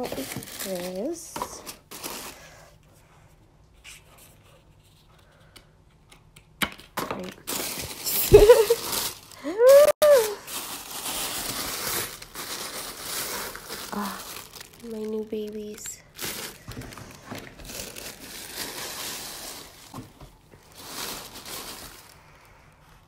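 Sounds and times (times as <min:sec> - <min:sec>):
tissue paper crinkling: 0:00.0 - 0:02.4, 0:07.4 - 0:23.0.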